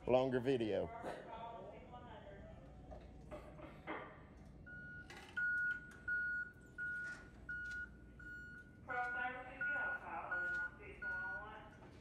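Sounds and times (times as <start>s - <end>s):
backup alarm beeping: 4.7s - 11.5s.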